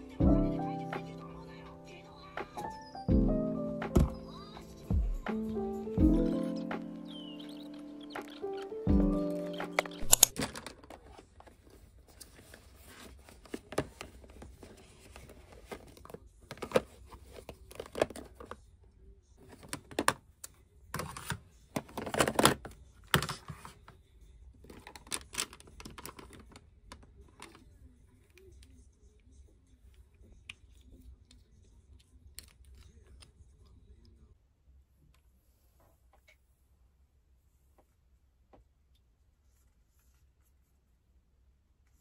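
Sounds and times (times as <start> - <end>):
plastic cases clicking and rattling: 9.7 - 11.6, 15.1 - 18.6, 21.0 - 23.7, 24.7 - 27.6.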